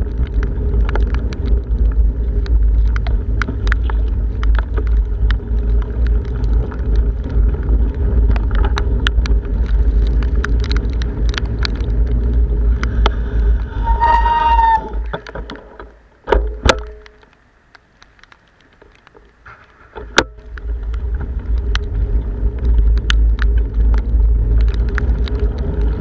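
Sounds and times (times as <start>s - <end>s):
rain ticks and taps: 0.0s - 26.0s
bicycle brakes squealing: 13.2s - 15.2s
wind buffeting microphone: 19.9s - 26.0s.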